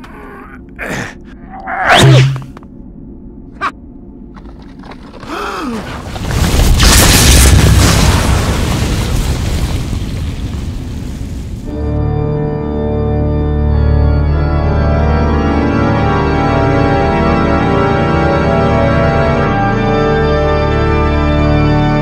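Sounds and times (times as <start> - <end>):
music of sustained chords: 11.7 - 22.0.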